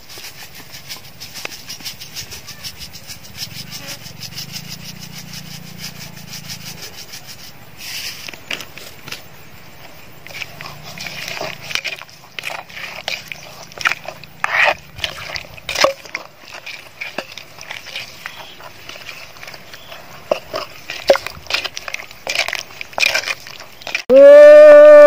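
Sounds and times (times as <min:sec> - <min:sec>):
pestle pounding in a mortar: 0:00.7 - 0:06.9, 0:10.2 - 0:24.1.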